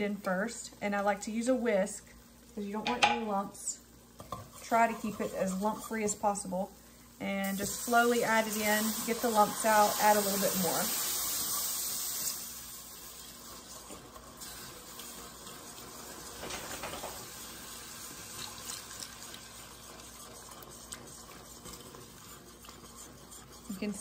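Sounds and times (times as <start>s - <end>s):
wire whisk stirring: 4.2s - 6.2s, 18.3s - 24.0s
liquid hissing in a hot pan: 7.4s - 24.0s.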